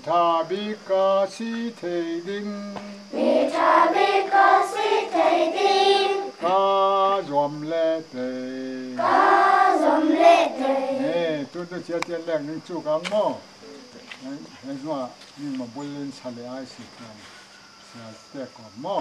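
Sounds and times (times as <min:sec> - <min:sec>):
children singing in unison: 0:03.1 - 0:06.9, 0:09.0 - 0:11.2.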